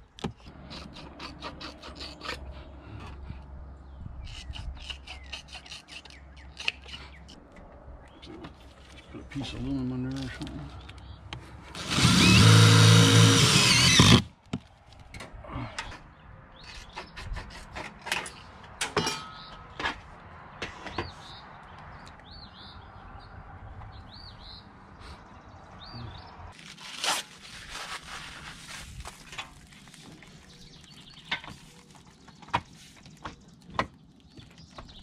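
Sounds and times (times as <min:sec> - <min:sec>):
cordless drill driving screw: 0:11.8 - 0:14.3.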